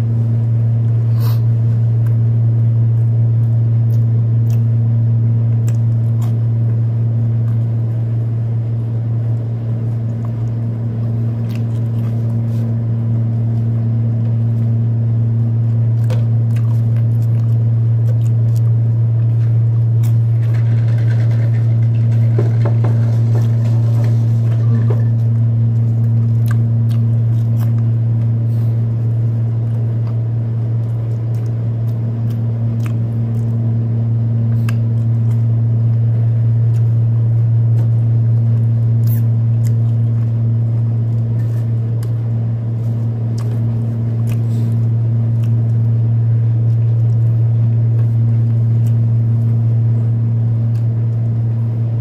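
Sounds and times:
air conditioner humming: 0:00.0 - 0:52.0
clicks of eating french fries: 0:34.5 - 0:36.0.

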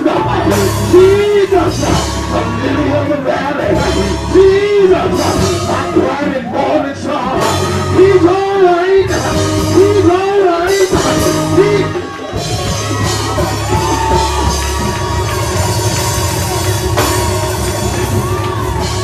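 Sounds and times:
person singing: 0:00.0 - 0:14.9
drum kit: 0:00.0 - 0:19.0
gospel church band music: 0:00.0 - 0:19.0.

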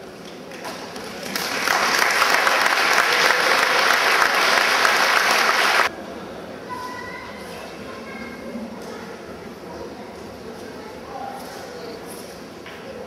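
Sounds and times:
audience applause: 0:01.0 - 0:05.9.

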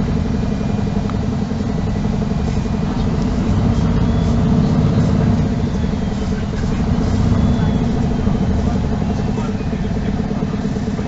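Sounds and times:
bus engine pulsing rumble: 0:00.0 - 0:11.0.

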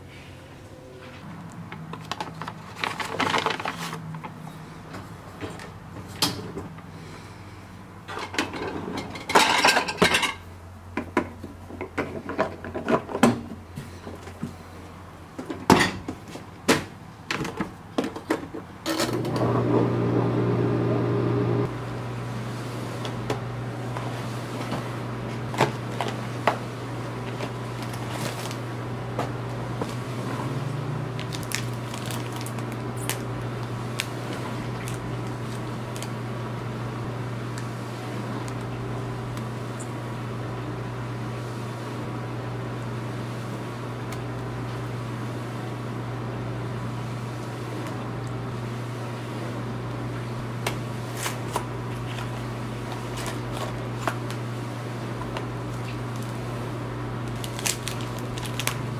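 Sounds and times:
dishwasher humming: 0:00.0 - 0:14.6, 0:15.2 - 0:58.9
plastic dishes clattering: 0:01.8 - 0:04.3.

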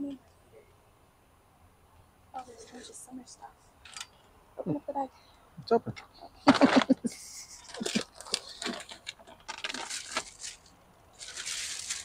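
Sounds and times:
plastic bags and cardboard rustling: 0:07.6 - 0:12.0.

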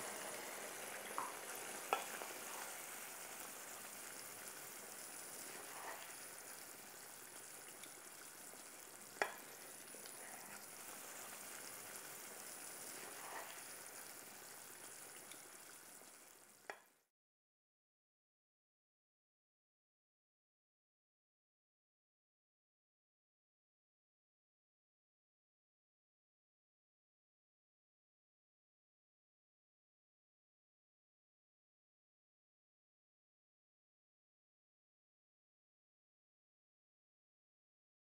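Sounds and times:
curry sizzling in pan: 0:00.0 - 0:17.1.

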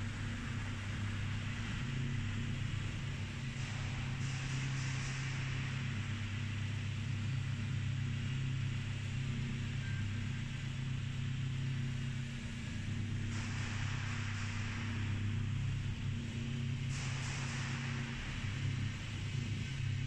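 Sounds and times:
hiss: 0:00.2 - 0:08.7, 0:13.2 - 0:20.0.

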